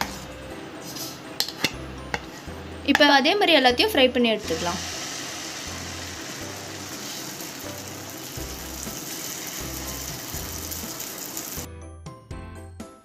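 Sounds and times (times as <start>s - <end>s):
batter sizzling in hot oil: 4.4s - 11.7s.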